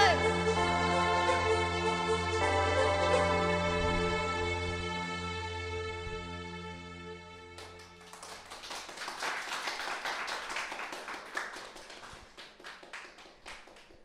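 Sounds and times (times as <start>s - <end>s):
sustained music chord: 0.0s - 7.8s
audience clapping: 7.6s - 14.0s.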